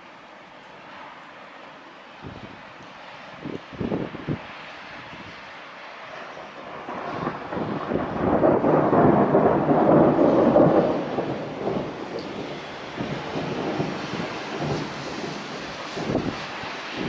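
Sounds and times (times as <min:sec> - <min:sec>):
thunder rumbling: 0:06.4 - 0:17.0.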